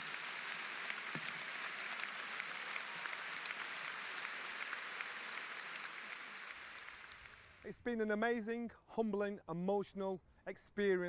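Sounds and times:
audience applauding: 0:00.0 - 0:07.6.

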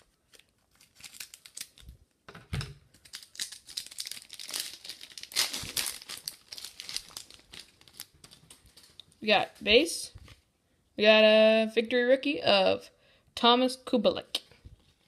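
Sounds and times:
plastic wrapper crinkling: 0:00.0 - 0:02.1, 0:02.9 - 0:09.3.

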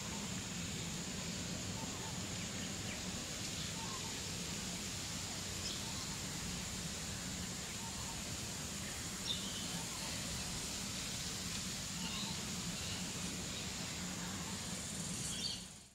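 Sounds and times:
high hiss: 0:00.0 - 0:15.9.

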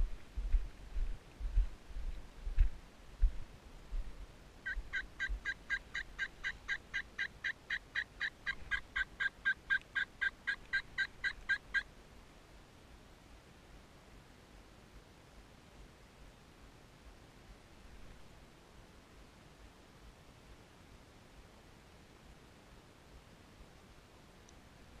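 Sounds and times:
low bumps on camera: 0:00.0 - 0:04.1
turkey yelping: 0:04.6 - 0:11.8.

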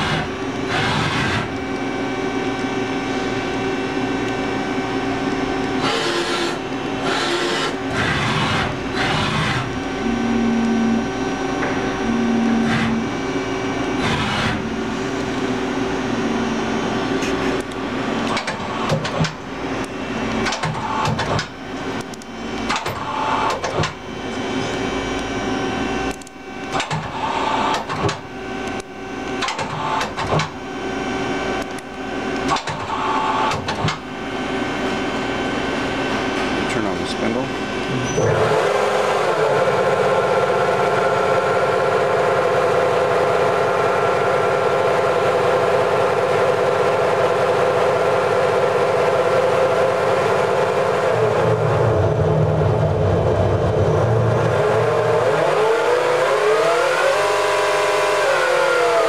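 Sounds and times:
lathe mechanical hum: 0:00.0 - 0:59.0
clicks and clunks of moving parts: 0:17.2 - 0:19.4, 0:20.3 - 0:24.0, 0:26.1 - 0:30.6, 0:32.4 - 0:34.0.

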